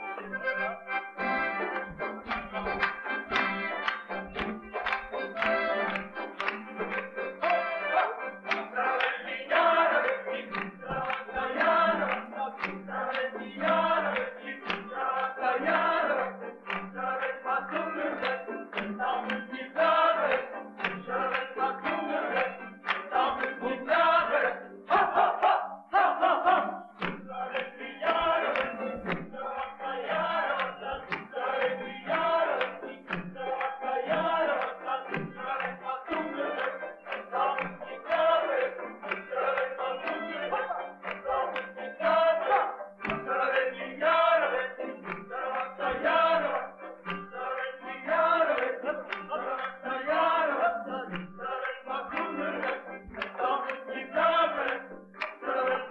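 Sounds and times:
regular beat: 0:00.0 - 0:08.8
group singing folk song: 0:00.0 - 0:55.9.

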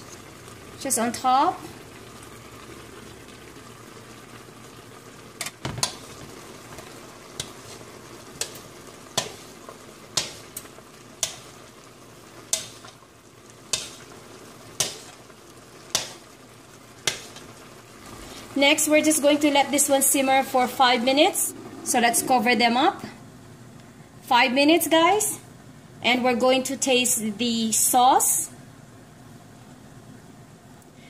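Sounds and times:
low sizzle in a wok: 0:00.0 - 0:31.0.

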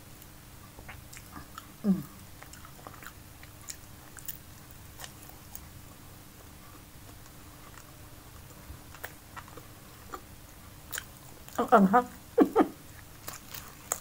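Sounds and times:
person chewing food: 0:00.8 - 0:05.8, 0:06.7 - 0:11.6, 0:12.8 - 0:14.0.

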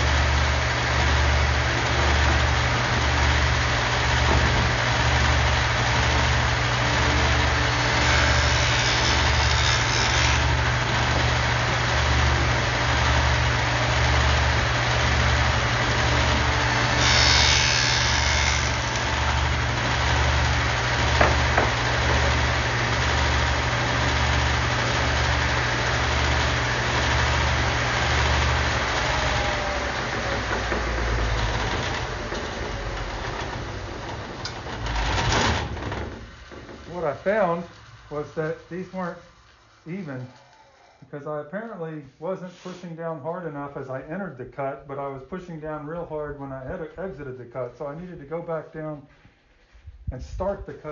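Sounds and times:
table saw motor hum: 0:00.0 - 0:41.1
saw blade cutting plywood: 0:00.8 - 0:13.2, 0:13.9 - 0:41.0.

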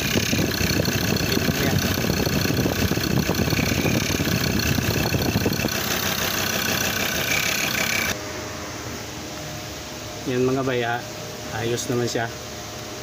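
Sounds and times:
diesel engine idling: 0:00.0 - 0:08.2.

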